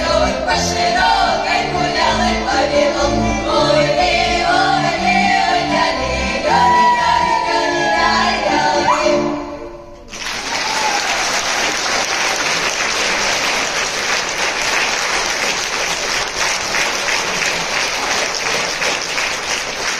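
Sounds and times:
choir singing with folk instruments: 0.0s - 9.9s
audience applause: 10.1s - 19.9s.

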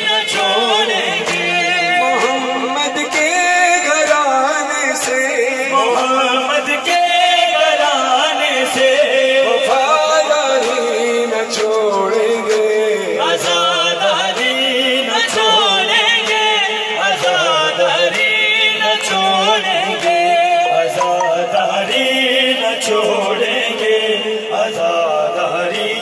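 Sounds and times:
voices singing ornamented melody: 6.0s - 26.0s.

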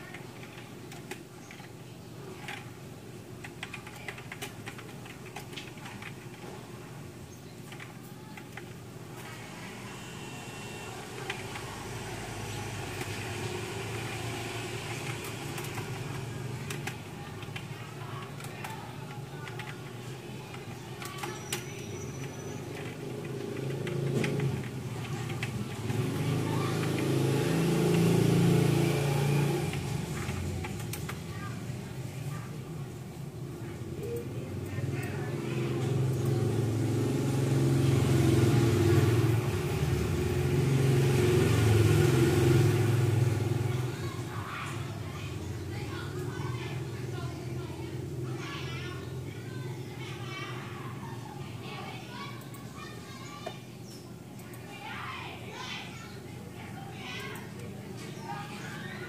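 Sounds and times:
motor vehicle noise: 7.6s - 50.8s
engine: 24.0s - 30.7s.

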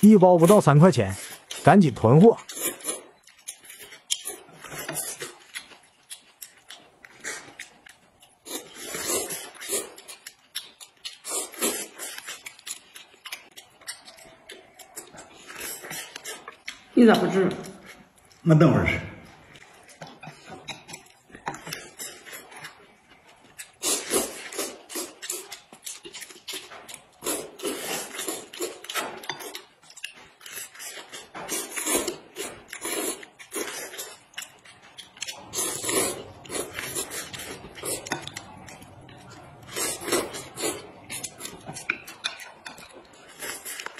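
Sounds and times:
noodles slurped and chewed: 0.0s - 18.4s, 19.3s - 43.9s
noodles slurped: 30.5s - 34.3s, 35.2s - 38.6s.

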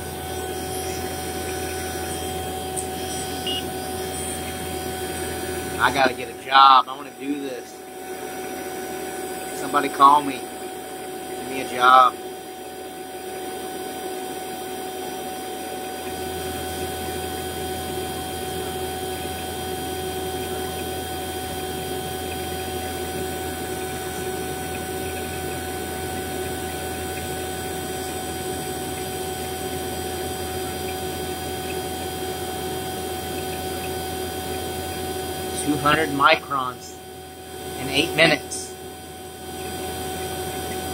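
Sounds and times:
deep hum: 0.0s - 13.7s
vacuum pump running: 0.0s - 40.9s.

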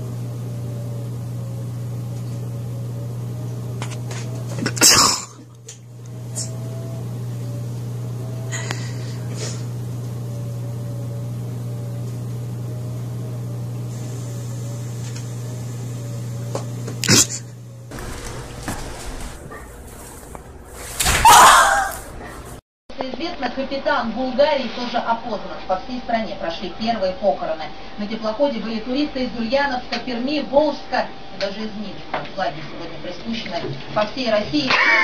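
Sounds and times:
low hum with wavering tone: 0.0s - 22.6s.

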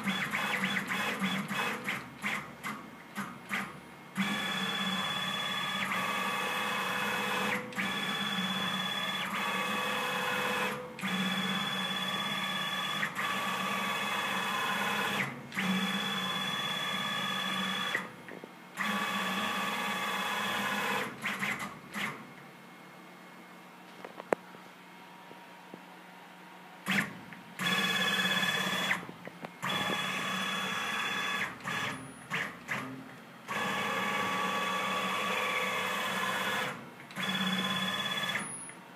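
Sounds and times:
milling machine motor whine: 4.2s - 22.1s, 26.8s - 38.6s.

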